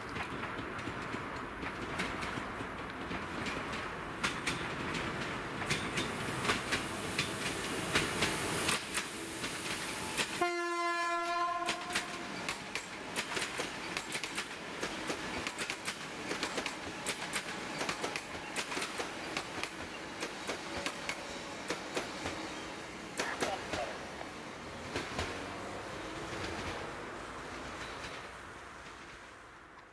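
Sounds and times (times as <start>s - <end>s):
train wheels clicking over rail joints: 0.0s - 10.4s, 11.4s - 29.9s
train horn: 10.4s - 12.3s.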